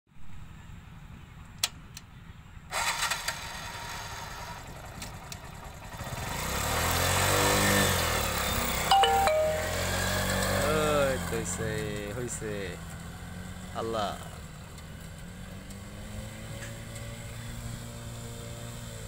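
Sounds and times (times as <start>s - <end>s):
motorcycle engine running: 3.9s - 19.0s.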